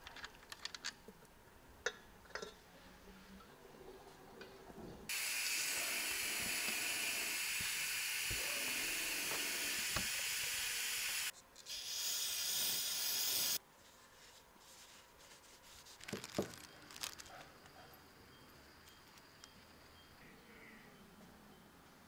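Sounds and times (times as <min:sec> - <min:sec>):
compressed air hissing: 0:05.1 - 0:13.6.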